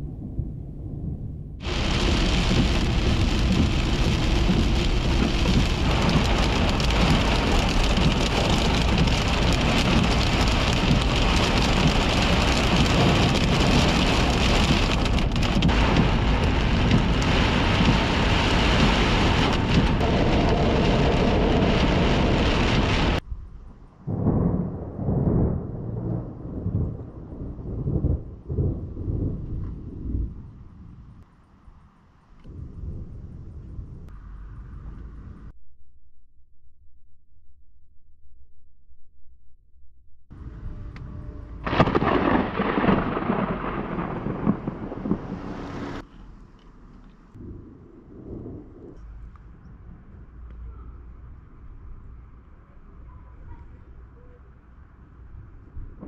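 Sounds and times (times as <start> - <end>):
low rolling thunder: 0.0 - 31.2, 32.5 - 35.5, 40.4 - 46.1, 47.4 - 50.4
heavy rain drumming on car roof: 1.6 - 23.2, 41.6 - 46.0.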